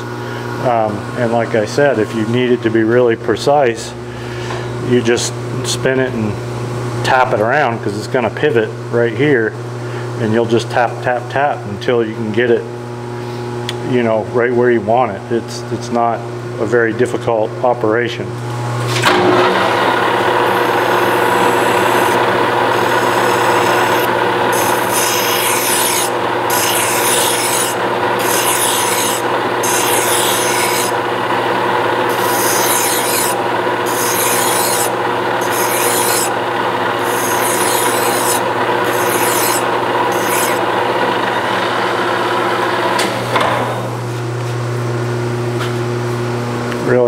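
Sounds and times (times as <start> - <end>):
lathe humming: 0.0 - 3.1, 19.0 - 44.0
hand file strokes on steel: 23.1 - 30.9, 32.1 - 36.3, 37.0 - 40.6.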